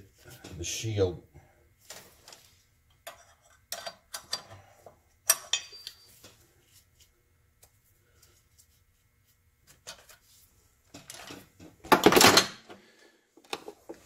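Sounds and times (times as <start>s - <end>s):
metal tools clinking: 5.3s - 6.1s.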